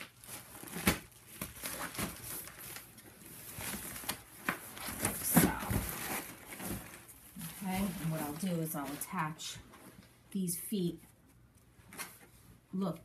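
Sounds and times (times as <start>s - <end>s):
nylon fabric rustling: 0.0s - 10.1s.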